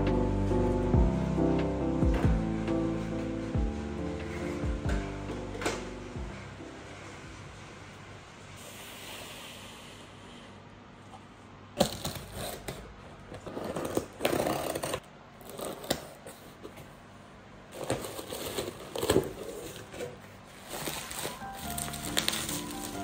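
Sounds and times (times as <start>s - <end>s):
box cutter cutting cardboard: 13.4s - 16.1s
crinkling packaging: 17.7s - 23.0s.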